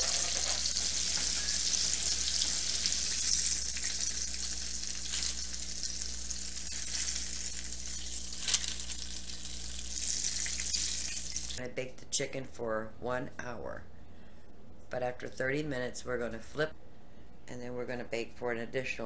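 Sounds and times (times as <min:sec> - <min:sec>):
chicken sizzling in oil: 0:00.0 - 0:11.6.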